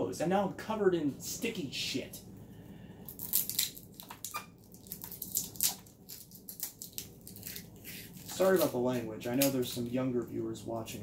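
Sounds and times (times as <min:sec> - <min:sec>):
tape crackling and peeling: 0:03.0 - 0:10.0.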